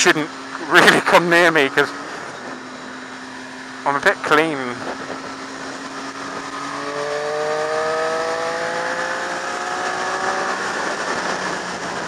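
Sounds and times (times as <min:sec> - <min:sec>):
motorcycle engine accelerating: 0:00.0 - 0:12.0
wind noise: 0:04.6 - 0:12.0.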